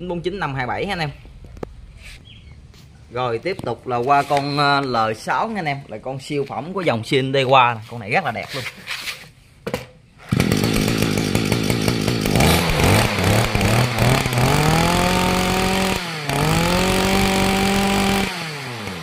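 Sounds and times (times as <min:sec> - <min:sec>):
brush cutter engine running: 0:10.3 - 0:19.0.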